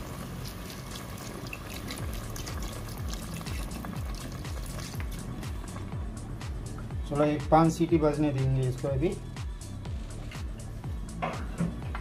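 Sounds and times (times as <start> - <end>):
water pouring into a pot: 0.0 - 5.8.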